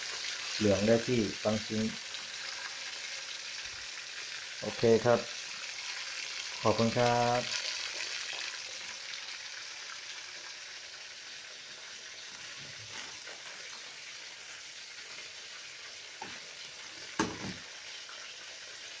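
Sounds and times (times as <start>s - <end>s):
chicken frying in oil: 0.0s - 19.0s
sharp knock: 17.2s - 17.6s.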